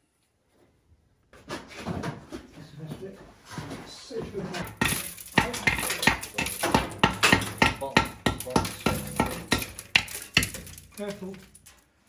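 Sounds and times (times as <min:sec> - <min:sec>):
metal flue liner clattering: 0:04.6 - 0:12.0.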